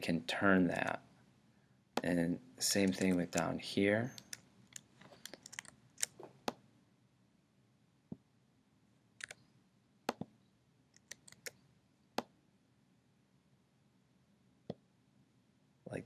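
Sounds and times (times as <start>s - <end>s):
mouse and keyboard clicks: 4.1s - 6.6s, 9.2s - 9.4s, 11.0s - 11.6s.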